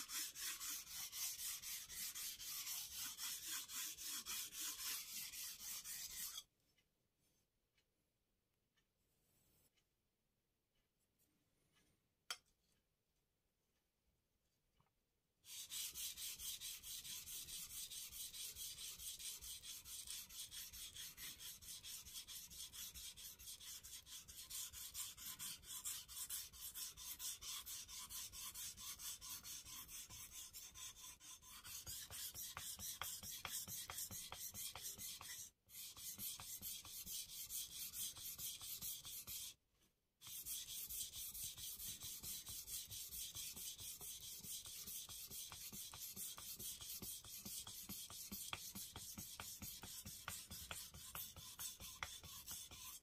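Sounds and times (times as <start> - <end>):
knife rubbing on whetstone: 0.0 - 6.4, 15.5 - 39.5.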